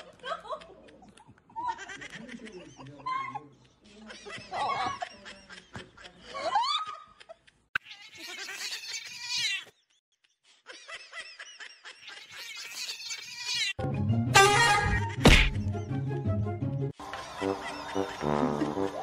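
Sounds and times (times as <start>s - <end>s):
high giggling: 0.0s - 13.7s.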